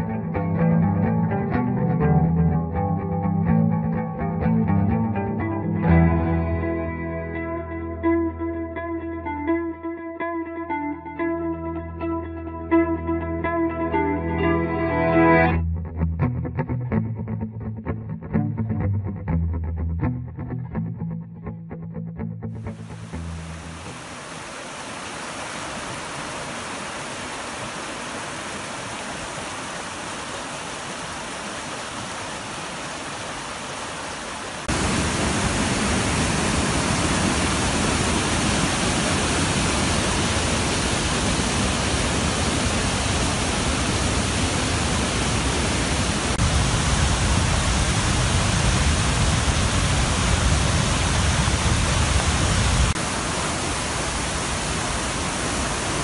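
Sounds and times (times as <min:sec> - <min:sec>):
rushing whitewater: 0:22.7 - 0:56.0
churning roar of rapids: 0:23.0 - 0:56.0.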